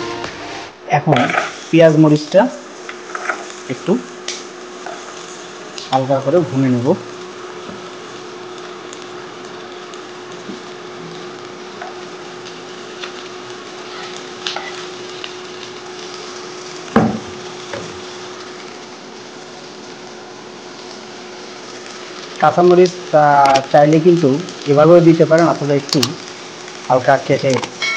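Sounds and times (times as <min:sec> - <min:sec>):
steady hum: 0:00.0 - 0:27.9
onions sizzling in a frying pan: 0:01.2 - 0:27.9
loud knock: 0:17.0 - 0:17.3.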